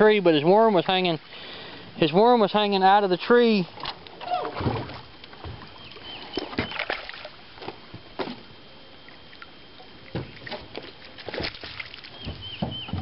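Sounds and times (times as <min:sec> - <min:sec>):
landing net splashing water: 0:03.8 - 0:05.7, 0:06.3 - 0:08.5, 0:10.1 - 0:12.3
fish splashing at surface: 0:10.4 - 0:12.2.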